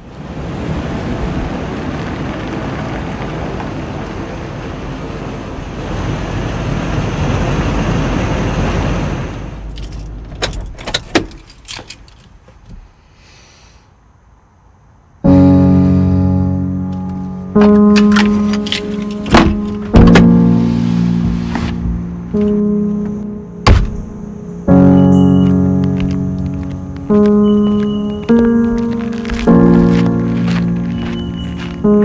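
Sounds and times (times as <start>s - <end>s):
keys jingling: 9.7s - 12.4s, 17.7s - 19.9s
guitar music: 15.3s - 32.0s.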